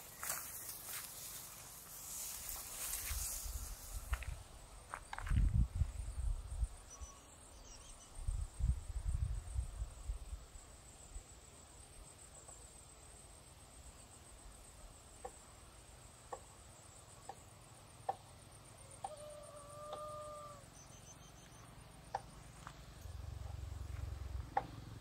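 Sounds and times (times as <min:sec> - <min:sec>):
held animal call: 0:18.8 - 0:21.2.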